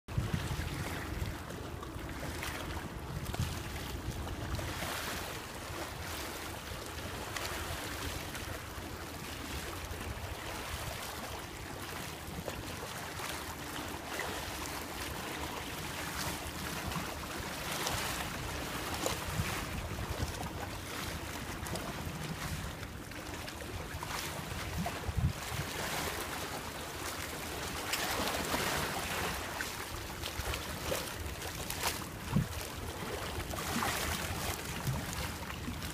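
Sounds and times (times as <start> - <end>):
wind buffeting microphone: 0.1 - 1.6, 24.6 - 25.8, 32.2 - 32.7
waves lapping against boulders: 0.1 - 35.9.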